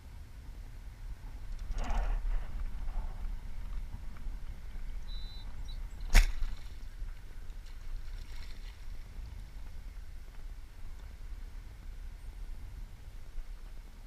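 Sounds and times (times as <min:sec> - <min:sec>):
steady low rumble: 0:00.0 - 0:14.0
bow string snapping: 0:06.0 - 0:06.8.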